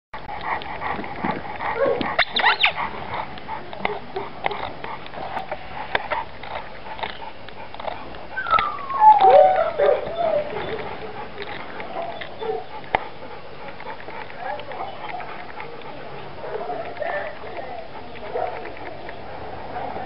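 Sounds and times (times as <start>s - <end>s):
dog panting: 0.2s - 20.0s
dog whining: 1.7s - 2.8s, 7.0s - 12.8s.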